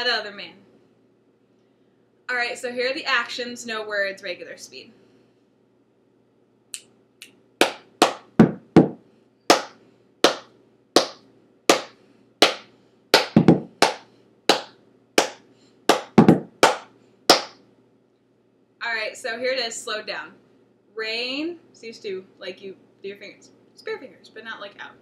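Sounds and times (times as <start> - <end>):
finger snaps: 6.7 - 7.4
hand claps: 6.8 - 17.6.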